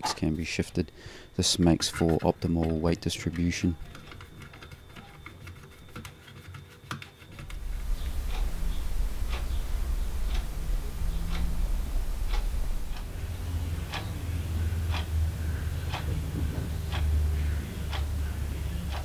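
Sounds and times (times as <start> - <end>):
steady low hum: 0.0 - 6.0, 7.3 - 19.0
sharp ticks: 7.4 - 19.0.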